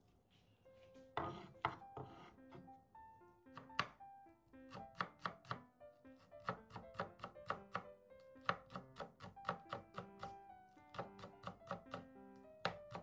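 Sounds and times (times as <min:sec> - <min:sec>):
background music: 0:00.7 - 0:13.0
knife chopping on wooden board: 0:01.2 - 0:02.6, 0:03.5 - 0:04.0, 0:04.7 - 0:05.6, 0:06.4 - 0:12.0, 0:12.6 - 0:13.0.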